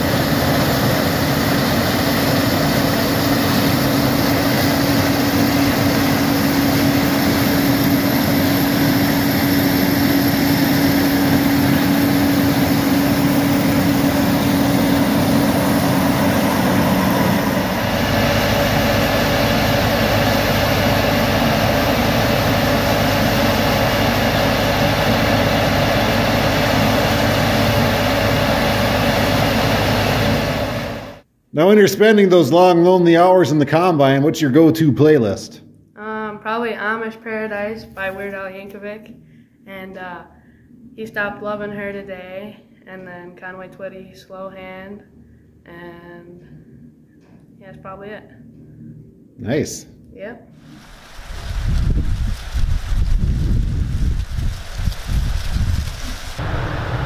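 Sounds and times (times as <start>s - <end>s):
combine harvester drone: 0.0s - 31.2s, 50.6s - 57.0s
deeper machine hum: 0.0s - 31.3s, 43.5s - 57.0s.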